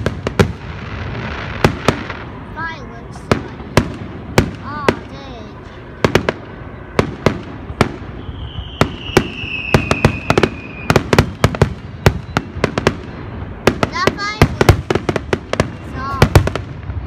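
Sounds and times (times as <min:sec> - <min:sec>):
fireworks bursting with bangs: 0:00.0 - 0:17.0
firework whistle: 0:07.8 - 0:13.6.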